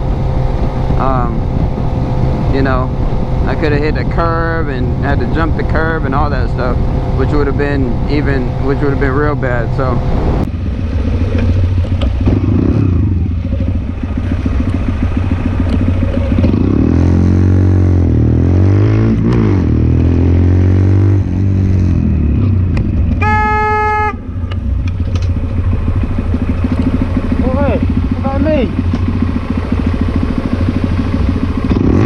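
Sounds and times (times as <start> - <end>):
motorcycle engine running: 0.0 - 32.0
vehicle horn: 23.2 - 24.5.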